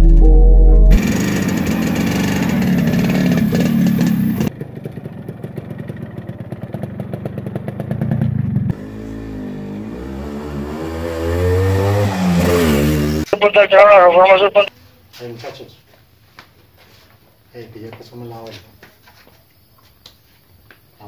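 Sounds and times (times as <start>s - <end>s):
motorcycle engine running and revving: 0.9s - 13.3s.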